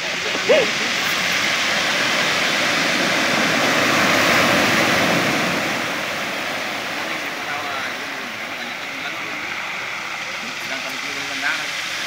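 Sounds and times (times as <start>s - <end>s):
waves breaking on gravel beach: 0.0s - 12.0s
brief voice-like call: 0.3s - 1.0s.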